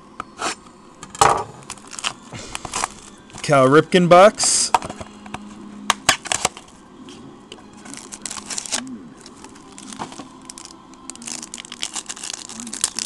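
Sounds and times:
foil pack tearing and crinkling: 1.6 - 3.6, 6.1 - 6.7, 7.8 - 13.0.

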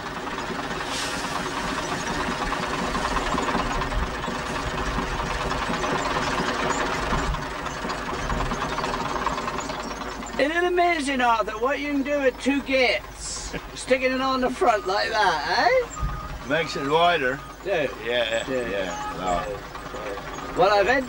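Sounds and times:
farm machinery engines running: 0.0 - 21.0
brief hiss: 0.9 - 1.5.

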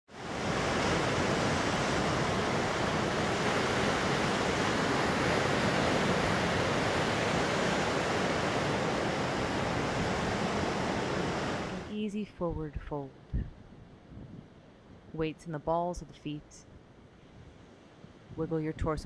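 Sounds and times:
ocean surf washing over rocks: 0.1 - 12.0.

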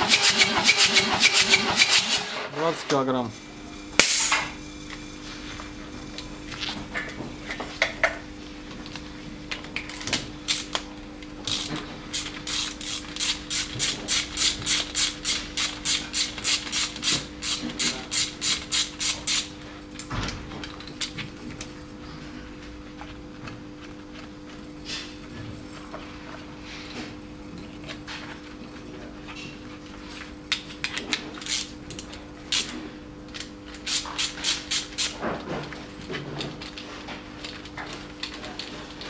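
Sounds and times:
electrical hum: 0.0 - 39.0
ratchet clicking: 11.5 - 19.5.

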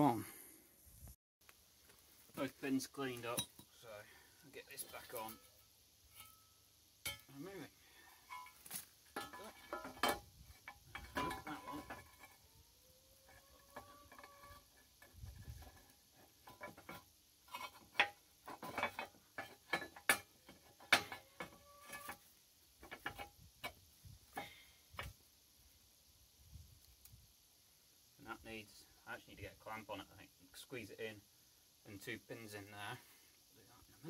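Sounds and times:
metallic clinks and knocks: 8.2 - 12.4, 15.4 - 22.2.

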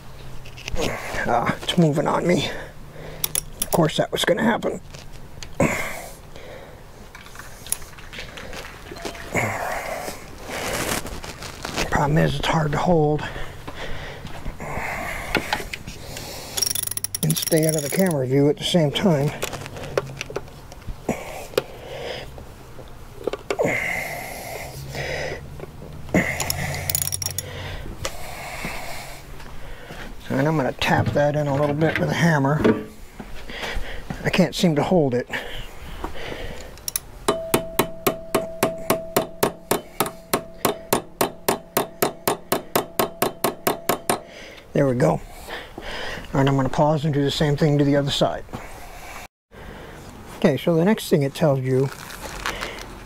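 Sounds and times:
metal clicks and taps: 3.2 - 3.8, 16.6 - 18.2, 36.7 - 44.3
ratchet clicking: 3.2 - 3.8, 16.6 - 18.2, 26.4 - 27.5, 36.8 - 37.1
metallic clicks and clinks: 3.2 - 3.9, 7.2 - 8.3, 8.9 - 9.4, 16.6 - 18.2, 26.4 - 27.5, 36.7 - 37.5.

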